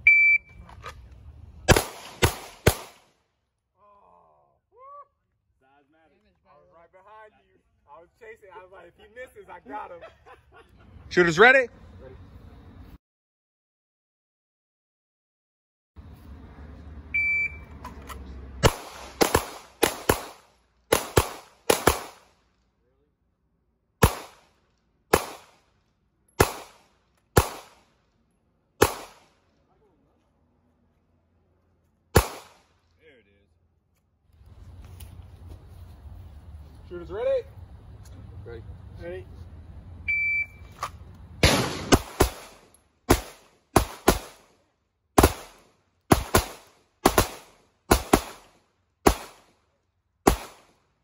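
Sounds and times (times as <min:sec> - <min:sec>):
handgun shots with echo: 0:01.7 - 0:03.0, 0:24.0 - 0:24.5, 0:26.4 - 0:26.8, 0:28.8 - 0:29.3, 0:32.2 - 0:32.6, 0:41.4 - 0:44.4, 0:50.3 - 0:50.7.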